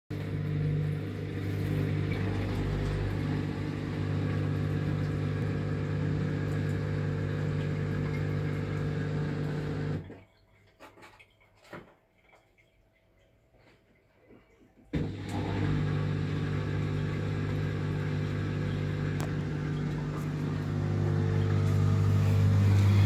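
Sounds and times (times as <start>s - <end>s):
dishwasher mechanical hum: 0.1s - 10.2s, 14.9s - 23.0s.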